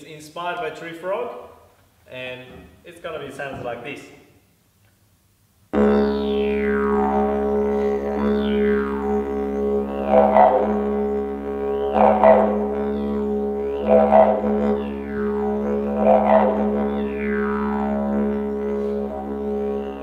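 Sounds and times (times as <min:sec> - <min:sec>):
didgeridoo drone: 0:05.8 - 0:20.0
vocal call sliding down: 0:05.8 - 0:20.0.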